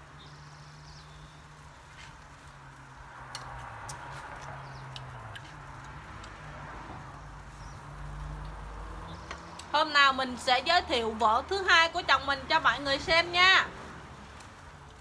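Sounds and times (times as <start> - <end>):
metal tongs tapping grill grate: 3.3 - 6.4.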